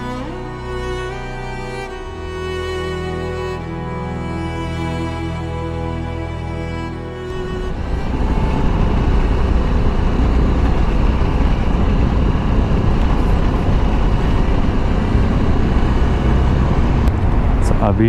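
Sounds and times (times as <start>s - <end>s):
motorcycle road rumble: 0.0s - 3.9s, 6.7s - 18.0s
wind noise: 7.2s - 18.0s.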